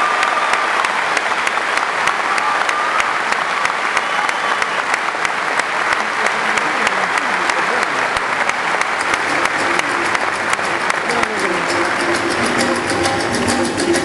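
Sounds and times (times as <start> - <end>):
audience applauding: 0.0 - 14.0.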